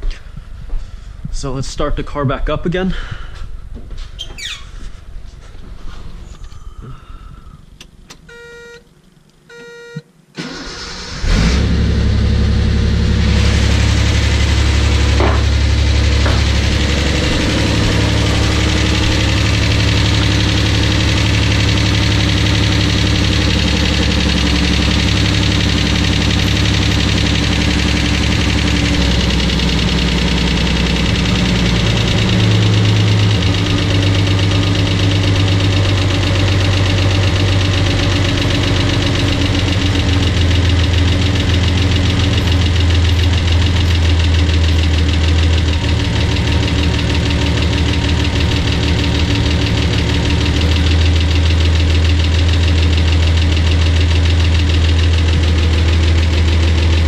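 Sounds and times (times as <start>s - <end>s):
short beeps: 8.3s - 8.8s, 9.5s - 10.0s
engine starter cranking: 10.4s - 12.3s, 13.1s - 57.0s
car engine idling: 10.4s - 57.0s.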